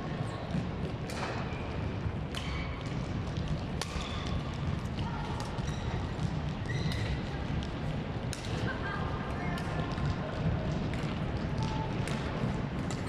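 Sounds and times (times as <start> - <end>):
sports hall hum: 0.0 - 13.0
rackets hitting shuttlecock: 1.0 - 1.5, 2.3 - 7.2, 10.7 - 13.0
shoes squeaking on floor: 5.6 - 7.2.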